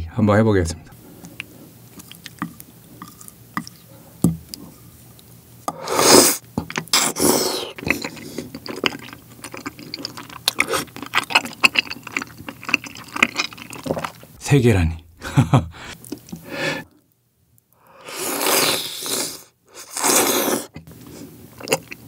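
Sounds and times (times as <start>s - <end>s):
wet sticky chewing: 1.1s - 5.3s, 6.6s - 14.4s, 18.2s - 22.0s
loud slurps: 5.7s - 14.1s, 18.0s - 21.8s.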